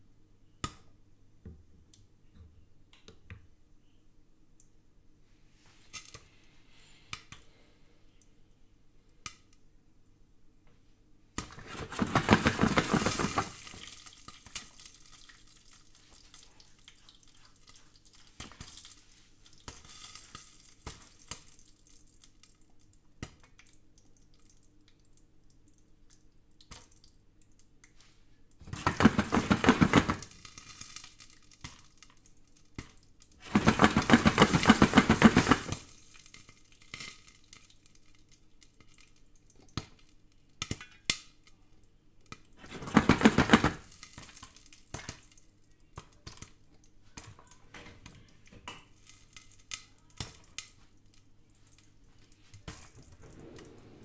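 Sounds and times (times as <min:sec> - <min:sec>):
popcorn rattling in shaken pot: 0:11.4 - 0:22.6, 0:28.6 - 0:40.9, 0:42.5 - 0:46.6
popcorn popping in a pot: 0:11.4 - 0:28.0, 0:28.6 - 0:47.7, 0:48.5 - 0:53.0.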